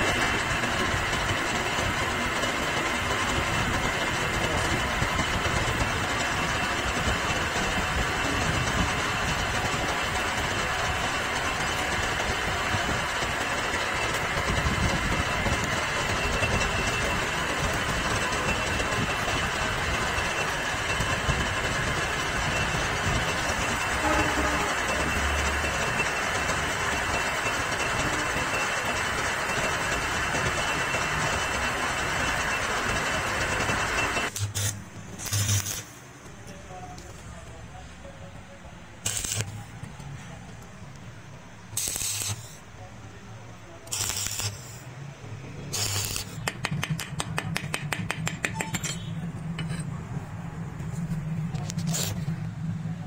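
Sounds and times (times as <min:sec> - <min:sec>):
metal lathe running: 0:00.0 - 0:35.8, 0:43.5 - 0:50.2.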